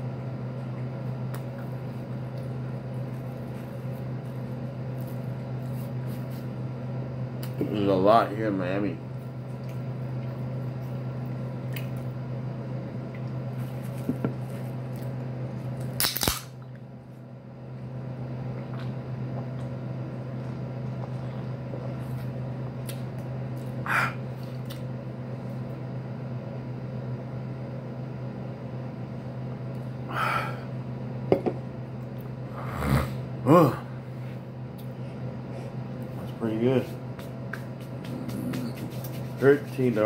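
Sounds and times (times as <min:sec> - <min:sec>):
low room hum: 0:00.0 - 0:40.0
sharp crack-like noises: 0:16.0 - 0:16.6.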